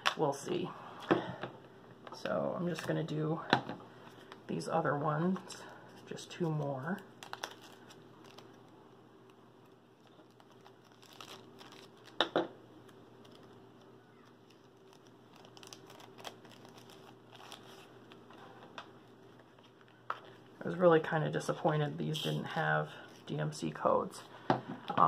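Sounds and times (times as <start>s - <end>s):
plastic bags crinkling: 6.8s - 20.5s.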